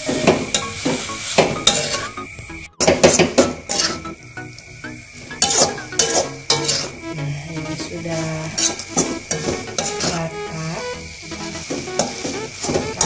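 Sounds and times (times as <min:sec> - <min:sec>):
stir-fry sizzling: 0:00.0 - 0:13.0
spatula scraping a wok: 0:03.7 - 0:04.0, 0:05.4 - 0:07.0.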